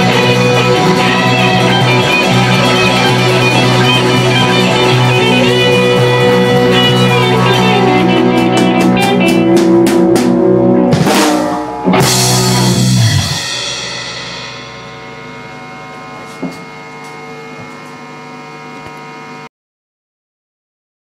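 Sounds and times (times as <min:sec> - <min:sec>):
rock band playing: 0:00.0 - 0:18.3
cymbal crash: 0:10.2 - 0:17.6.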